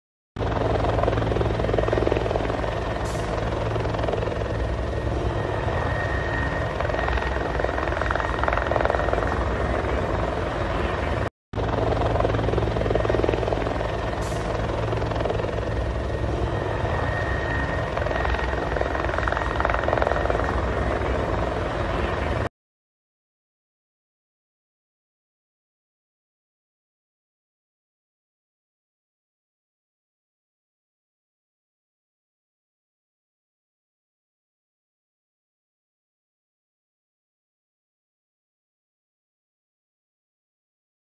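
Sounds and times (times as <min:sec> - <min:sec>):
helicopter flying overhead: 0:00.4 - 0:22.5.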